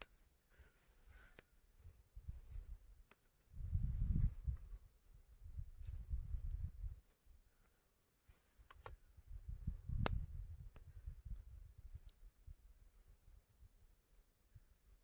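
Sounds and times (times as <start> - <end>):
small taps and clicks: 8.6 - 9.0.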